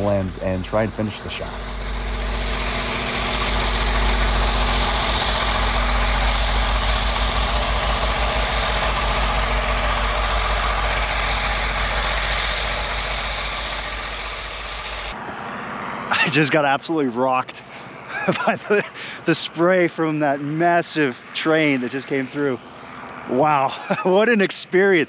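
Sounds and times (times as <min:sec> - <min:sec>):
rushing hiss of blown snow: 0:00.0 - 0:15.2
diesel locomotive engine rumble: 0:00.0 - 0:25.0.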